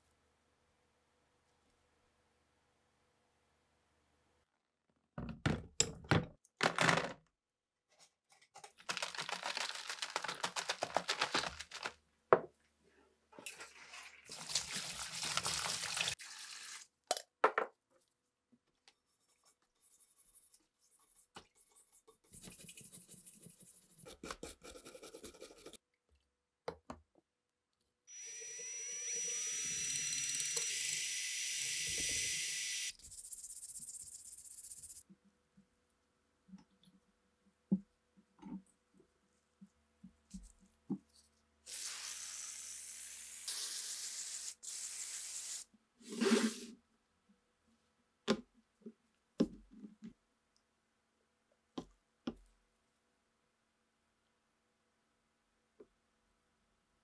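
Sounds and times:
water pouring into plastic tub: 0:08.8 - 0:11.9, 0:13.6 - 0:16.9.

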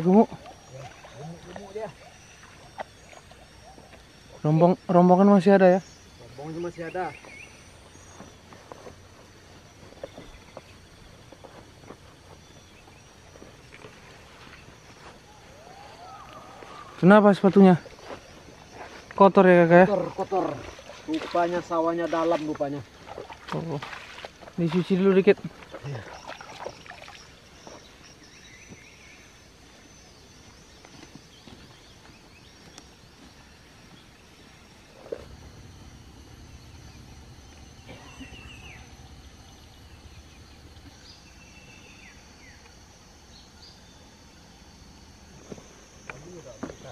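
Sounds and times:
water splashing: 0:00.0 - 0:04.0, 0:19.9 - 0:27.6
faint bird chirps: 0:00.0 - 0:22.4, 0:24.6 - 0:44.6
high-pitched insect drone: 0:00.0 - 0:46.9
soft footsteps: 0:08.0 - 0:16.9, 0:17.8 - 0:19.2
faint high chirps: 0:12.3 - 0:21.3, 0:33.9 - 0:42.7.

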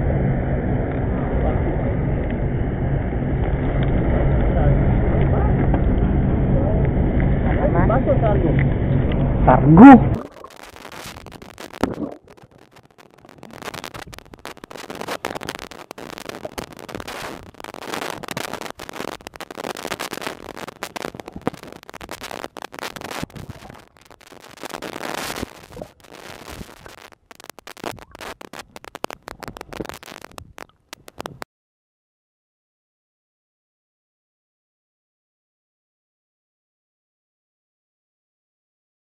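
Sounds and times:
muffled rush of water: 0:00.0 - 0:31.4
underwater crackling and clicking: 0:10.1 - 0:31.5.

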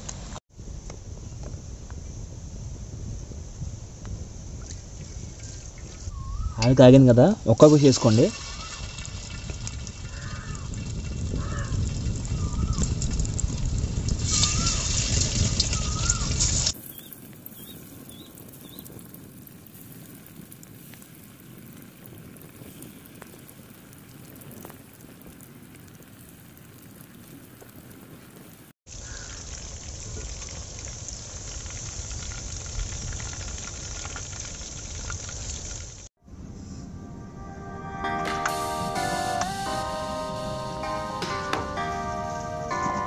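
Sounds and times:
oil sizzling in a wok: 0:07.6 - 0:28.1, 0:28.9 - 0:36.1.

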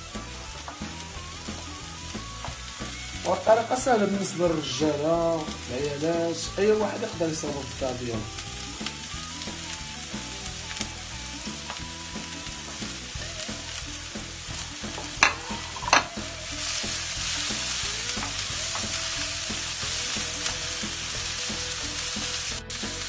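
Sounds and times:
vegetables sizzling in oil: 0:00.0 - 0:23.0
wooden spatula scraping a wok: 0:14.9 - 0:19.0.

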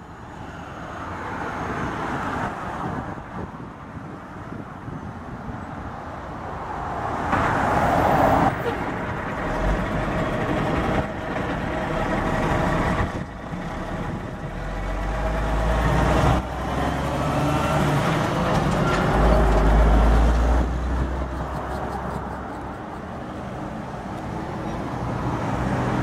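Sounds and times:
truck diesel engine driving past: 0:07.5 - 0:26.0.

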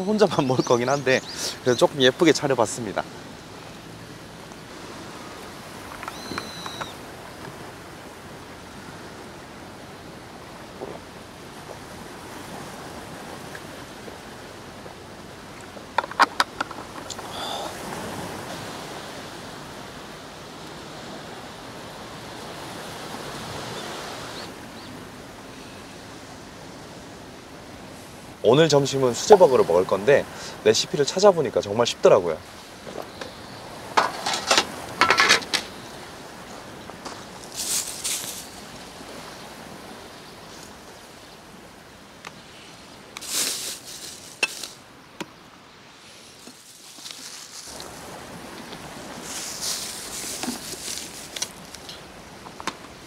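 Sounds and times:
waves washing onto shore: 0:00.0 - 0:53.0
wind: 0:00.0 - 0:53.0
faint high chirps: 0:06.0 - 0:07.0.

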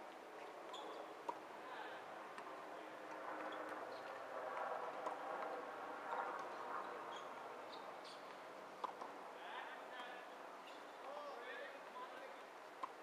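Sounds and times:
steady background hiss: 0:00.0 - 0:13.0
faint ball ticks: 0:08.3 - 0:09.1, 0:11.8 - 0:13.0.

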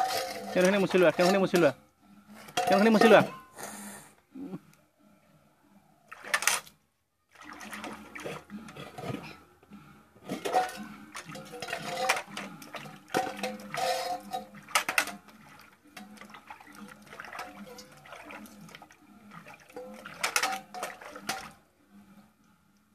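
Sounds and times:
steel dishes clinking: 0:00.0 - 0:01.8, 0:02.4 - 0:03.6, 0:10.3 - 0:16.2, 0:19.7 - 0:21.6
water splashing in metal bucket: 0:00.0 - 0:01.8, 0:02.5 - 0:03.4, 0:06.1 - 0:06.7, 0:07.3 - 0:09.3, 0:10.3 - 0:21.6.

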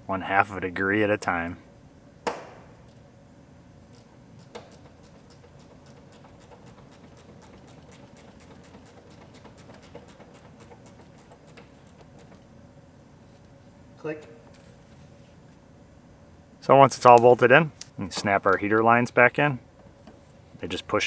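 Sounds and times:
hand ratchet clicking: 0:04.4 - 0:12.3.

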